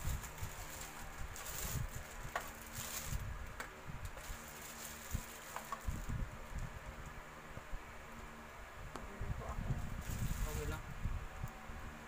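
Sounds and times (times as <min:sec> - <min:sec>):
plastic handling noise: 0:00.0 - 0:06.2.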